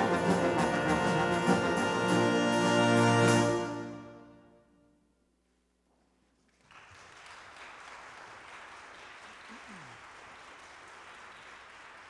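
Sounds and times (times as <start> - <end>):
audience applauding: 6.5 - 12.0.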